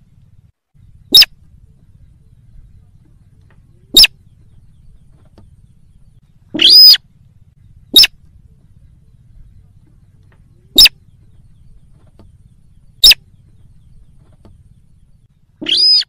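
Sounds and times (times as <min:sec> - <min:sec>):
rail bird sharp high calls: 0:01.0 - 0:01.4, 0:03.9 - 0:04.3, 0:06.4 - 0:07.1, 0:07.8 - 0:08.3, 0:10.7 - 0:11.3, 0:12.9 - 0:13.4, 0:15.6 - 0:16.0.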